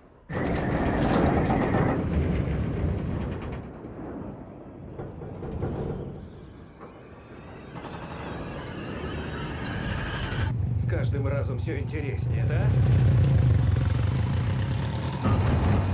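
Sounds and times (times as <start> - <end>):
engine noise: 6.8 - 15.9.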